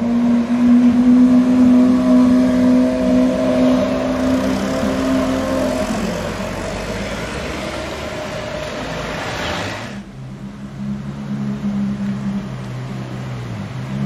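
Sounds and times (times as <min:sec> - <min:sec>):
road and traffic noise: 0:00.0 - 0:14.0
sports car pulling away: 0:00.4 - 0:10.0.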